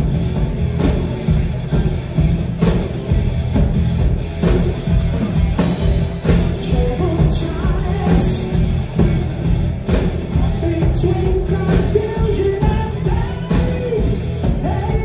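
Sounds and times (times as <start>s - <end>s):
live rock band playing: 0.0s - 15.0s
lead vocal singing: 6.5s - 9.2s, 9.9s - 15.0s.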